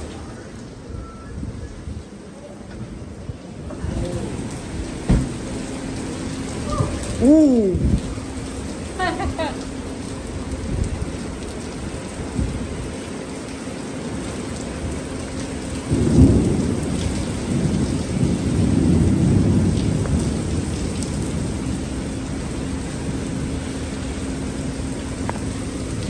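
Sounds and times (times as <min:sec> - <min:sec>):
thunder rumbling: 0:00.0 - 0:13.0, 0:14.8 - 0:26.0
heavy rain on pavement: 0:00.0 - 0:26.0.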